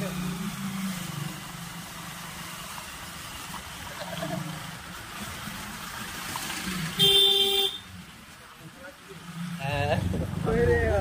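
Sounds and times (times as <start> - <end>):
road hiss: 0.0 - 11.0
vehicle engine hum: 0.0 - 11.0
wind: 0.0 - 11.0
vehicle horn beeping: 7.0 - 7.9.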